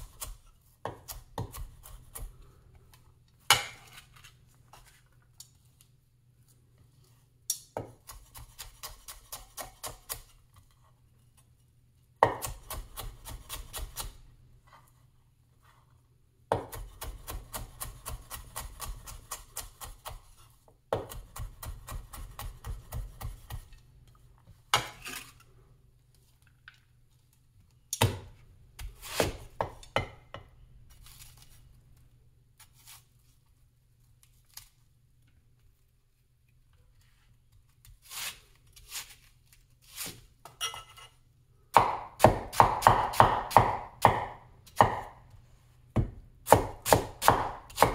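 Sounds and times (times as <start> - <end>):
cleaver chopping on wooden board: 41.8 - 45.1, 46.0 - 47.9.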